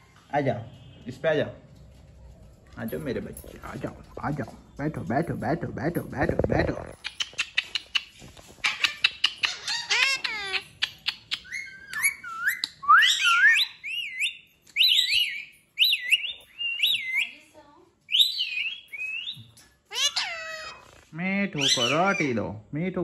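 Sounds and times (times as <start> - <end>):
parakeet whistled warbling calls: 8.6 - 17.3, 18.1 - 20.9, 21.6 - 22.4.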